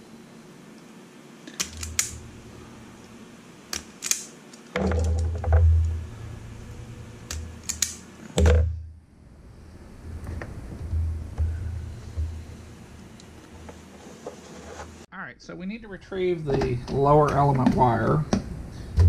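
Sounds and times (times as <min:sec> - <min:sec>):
crimping tool jaws clicking: 0:03.8 - 0:04.7, 0:07.3 - 0:08.0.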